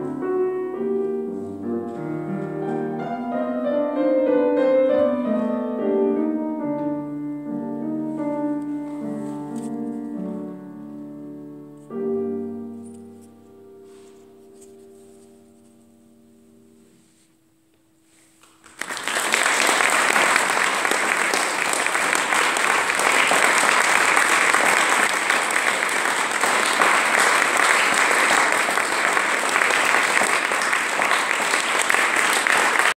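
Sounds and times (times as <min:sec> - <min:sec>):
violin and piano chord: 0:00.0 - 0:17.2
audience applause: 0:18.4 - 0:32.9.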